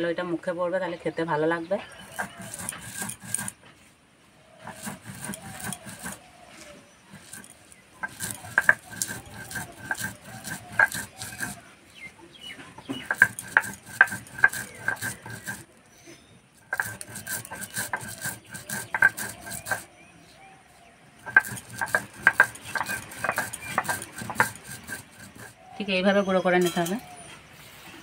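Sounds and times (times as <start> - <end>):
stone roller grinding spices: 1.8 - 3.8, 4.5 - 15.8, 16.6 - 20.0, 21.2 - 27.2.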